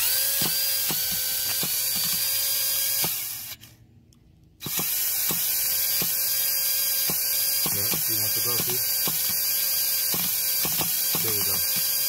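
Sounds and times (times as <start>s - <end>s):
electric starter cranking engine: 4.6s - 12.0s.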